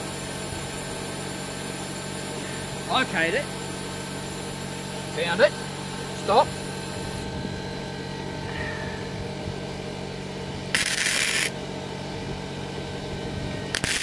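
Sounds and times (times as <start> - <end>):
welder arc crackling: 0.0 - 7.2, 10.7 - 11.5, 13.7 - 14.0
steady low hum: 0.0 - 14.0.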